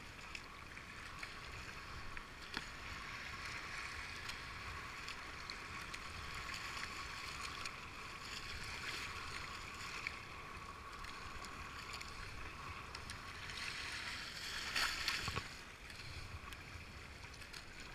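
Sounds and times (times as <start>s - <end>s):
paddle strokes splashing: 0.0s - 17.9s.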